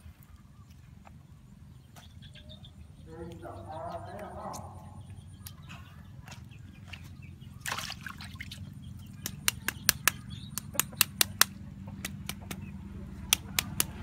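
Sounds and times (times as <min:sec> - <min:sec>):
cleaver cutting clicks: 0:13.3 - 0:14.0.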